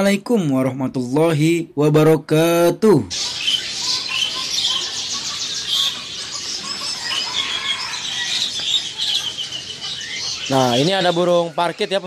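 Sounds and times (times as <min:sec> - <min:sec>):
small birds chirping: 0:03.1 - 0:12.0.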